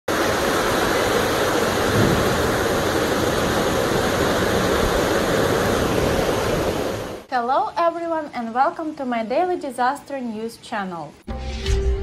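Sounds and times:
floodwater rushing: 0.1s - 7.3s.

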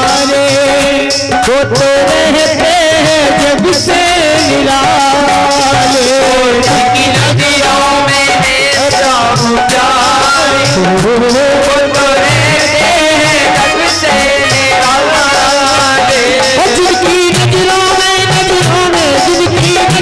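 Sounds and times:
hand drum beat: 0.0s - 20.0s
instrumental accompaniment: 0.0s - 20.0s
person singing devotional song: 0.0s - 20.0s.

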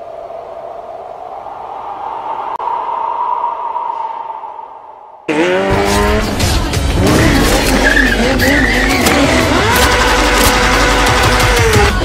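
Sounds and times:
motorcycle engine revving: 5.3s - 12.0s
tyre squeal: 7.6s - 10.0s.

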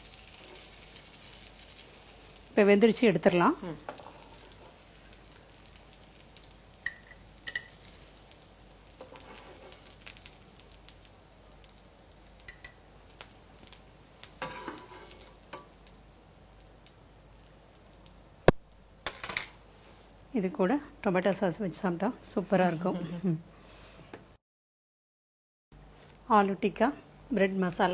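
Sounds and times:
patties sizzling in a frying pan: 0.0s - 22.9s
spatula scraping pan: 9.0s - 9.9s, 14.4s - 15.3s.

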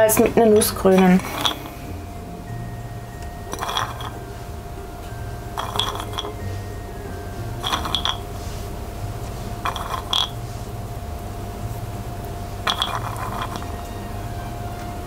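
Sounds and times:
nuts rattling against glass bowl: 0.5s - 1.8s, 3.5s - 4.2s, 5.5s - 6.4s, 7.6s - 8.3s, 9.6s - 10.4s, 12.6s - 13.8s.

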